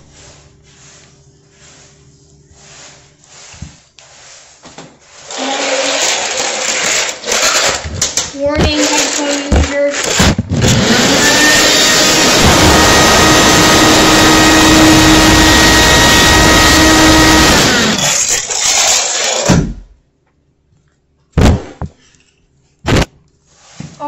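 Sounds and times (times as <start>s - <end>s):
sharp thumps: 21.4s - 22.0s.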